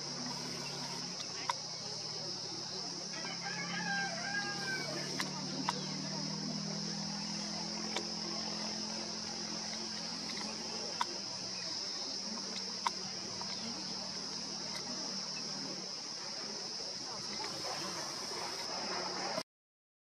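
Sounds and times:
insect chorus: 0.0 - 19.4
sharp clicks: 9.6 - 15.6.

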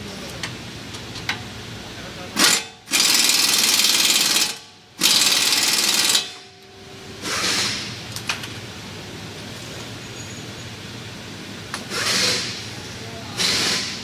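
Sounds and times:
impact wrench hammering: 2.4 - 6.5.

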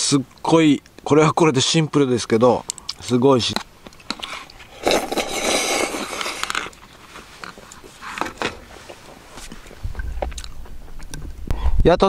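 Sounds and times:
crunching and chewing: 2.6 - 11.2
chopsticks scraping plastic bowl: 4.0 - 9.7.

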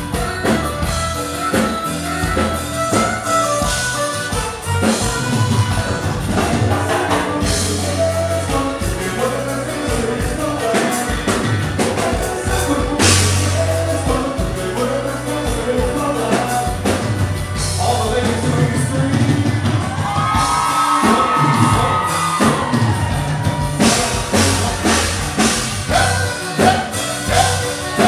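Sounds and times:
heavy bass and drum beat: 0.0 - 28.0
keyboards: 0.0 - 28.0
live band playing: 0.0 - 28.0
lead vocal singing: 5.9 - 28.0.

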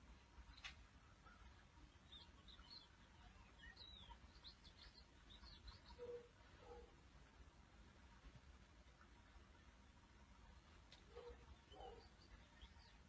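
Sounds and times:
small bird chirping: 0.4 - 7.0, 11.0 - 13.0.

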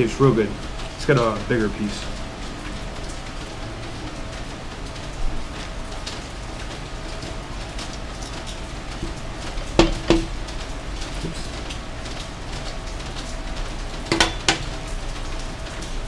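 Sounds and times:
rain hissing: 0.0 - 16.0
metal tongs clacking: 14.1 - 14.8.

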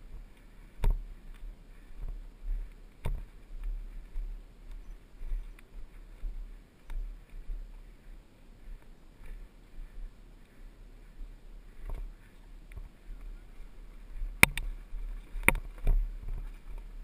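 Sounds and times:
dirt bike bumping down trail: 0.0 - 7.7, 14.1 - 17.0.

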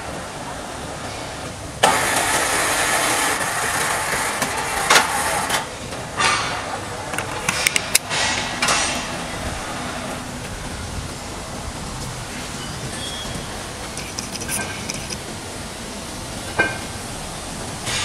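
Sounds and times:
sharp metallic knocks: 6.2 - 10.6.

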